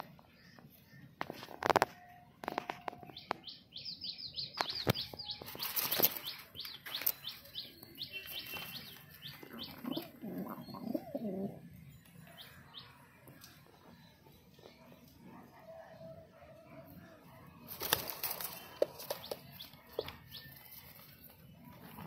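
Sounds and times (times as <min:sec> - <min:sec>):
birds chirping: 0:02.8 - 0:16.1, 0:16.9 - 0:22.0
wings fluttering: 0:05.4 - 0:07.1, 0:17.7 - 0:20.1
pigeon cooing: 0:09.3 - 0:11.8.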